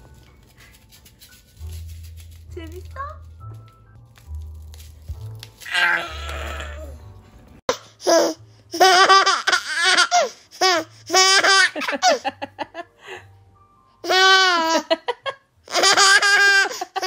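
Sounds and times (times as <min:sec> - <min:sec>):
baby crying: 0:05.7 - 0:07.0.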